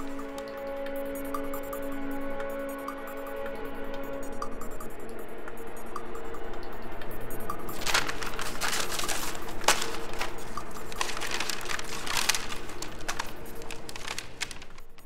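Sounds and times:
paper rustling and crinkling: 7.7s - 15.0s.

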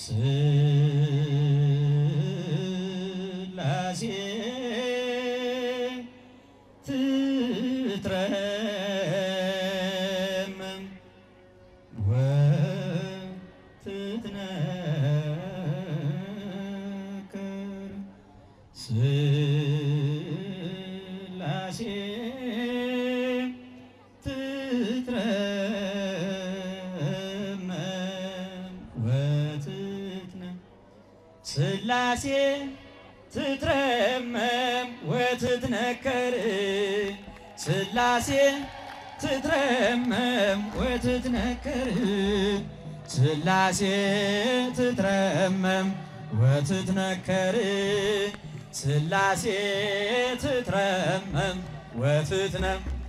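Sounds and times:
man singing into a microphone: 0.0s - 53.0s
singer breathing: 6.1s - 6.8s.

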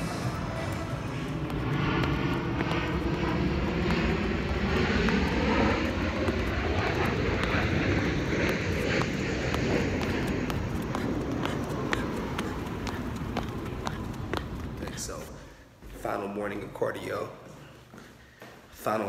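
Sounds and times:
steady mechanical drone: 0.0s - 17.2s
footsteps on concrete curb: 0.8s - 16.0s.

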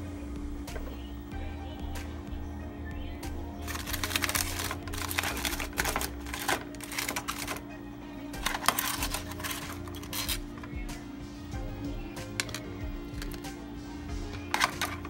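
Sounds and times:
background music: 0.0s - 15.0s
aluminium foil crinkling: 3.6s - 7.6s, 8.4s - 10.7s, 12.3s - 13.5s, 14.5s - 15.0s.

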